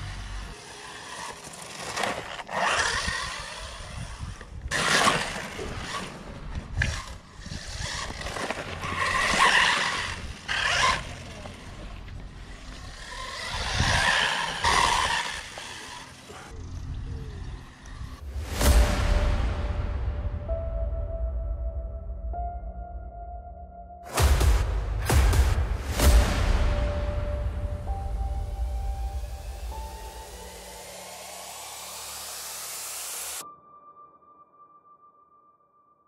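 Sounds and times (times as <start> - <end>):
rc car motor whine: 0.0 - 18.2.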